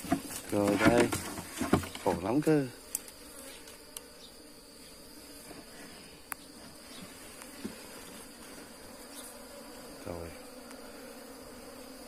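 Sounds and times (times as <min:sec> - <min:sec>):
honeybees buzzing: 0:00.0 - 0:12.0.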